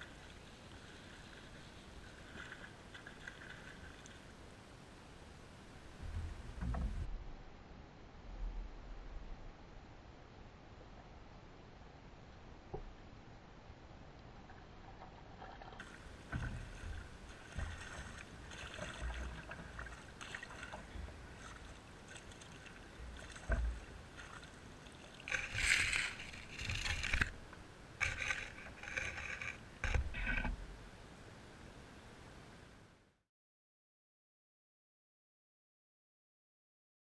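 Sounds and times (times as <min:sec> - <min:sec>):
water sloshing around a net: 0:00.0 - 0:04.3, 0:15.2 - 0:27.4, 0:28.0 - 0:30.6
loud splashing: 0:16.5 - 0:27.2.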